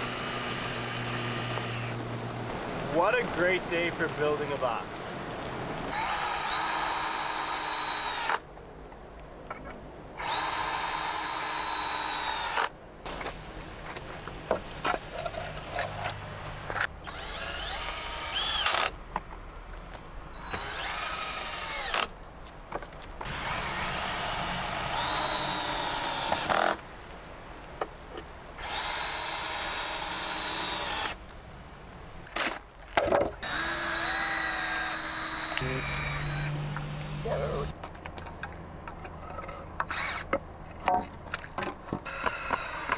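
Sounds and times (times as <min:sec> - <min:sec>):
drill driving screws into wood: 0:00.0 - 0:02.0, 0:05.9 - 0:08.4, 0:10.2 - 0:12.7, 0:15.4 - 0:19.0, 0:20.3 - 0:22.1, 0:23.2 - 0:26.8, 0:28.6 - 0:31.2, 0:33.4 - 0:37.2, 0:39.9 - 0:40.3, 0:42.0 - 0:42.9.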